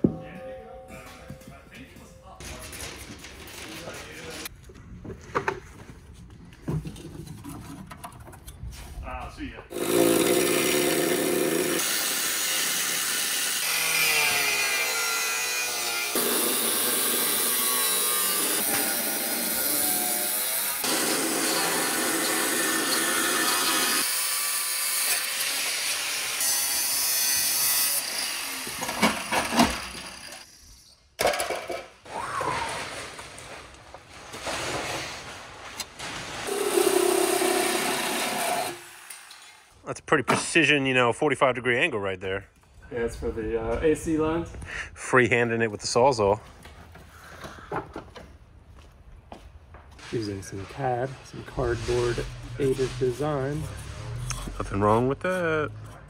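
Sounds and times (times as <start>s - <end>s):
angle grinder cutting steel: 9.7s - 30.5s, 36.5s - 39.5s.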